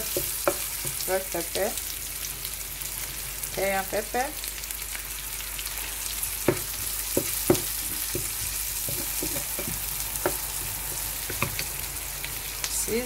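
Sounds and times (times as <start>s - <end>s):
vegetables sizzling in a pan: 0.0s - 13.0s
spatula knocking against pan: 6.4s - 10.5s.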